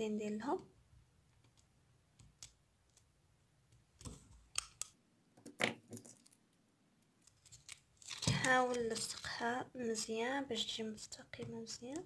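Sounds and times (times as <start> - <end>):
plastic sheet crinkling: 7.3 - 9.4.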